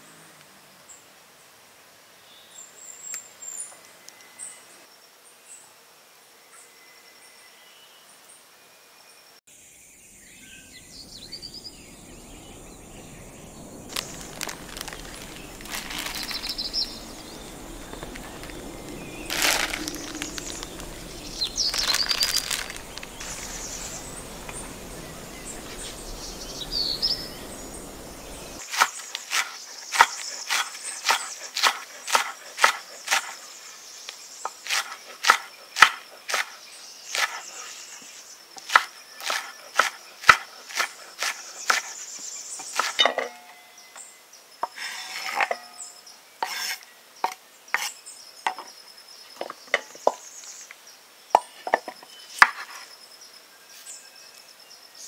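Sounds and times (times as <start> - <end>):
birds chirping: 9.6 - 46.7
plastic bag rustling: 13.8 - 28.8
knife chopping on wooden board: 28.7 - 33.3.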